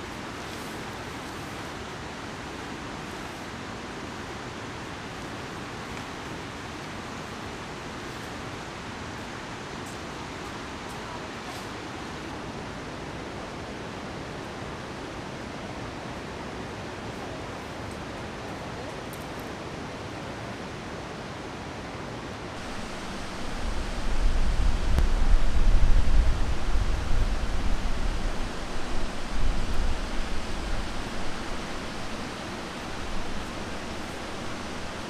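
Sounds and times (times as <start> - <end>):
river rapids rushing: 20.0 - 35.0
low uneven rumble: 22.6 - 35.0.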